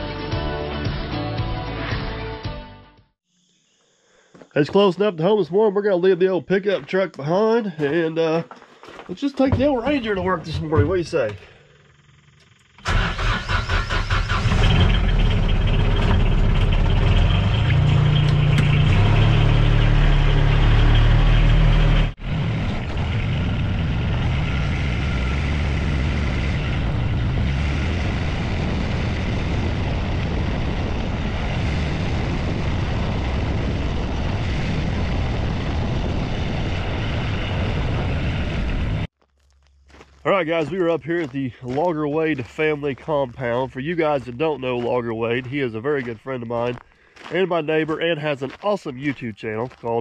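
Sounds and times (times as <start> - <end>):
utility vehicle engine starting: 9.4 - 32.0
engine running steadily: 9.4 - 39.1.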